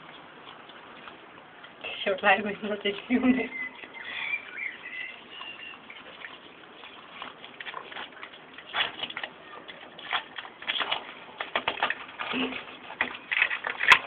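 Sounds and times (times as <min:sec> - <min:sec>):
crab shell clicks and crunches: 0:07.3 - 0:14.0.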